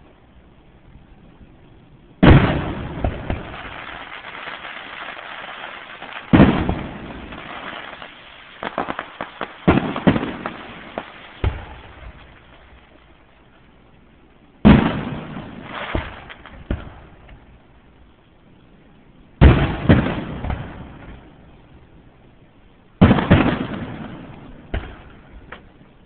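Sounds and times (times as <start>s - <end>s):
fireworks bangs: 2.1s - 13.3s, 14.6s - 17.6s, 19.4s - 21.5s, 23.0s - 25.9s
small firework pops: 2.2s - 13.0s, 14.6s - 17.5s, 19.4s - 21.3s, 23.0s - 25.8s.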